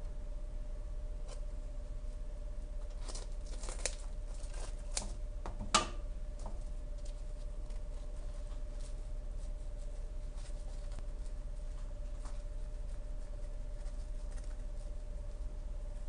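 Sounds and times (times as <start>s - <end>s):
faint steady hum: 0.0s - 16.0s
fried dough crackling on paper: 2.8s - 5.2s, 6.3s - 15.6s.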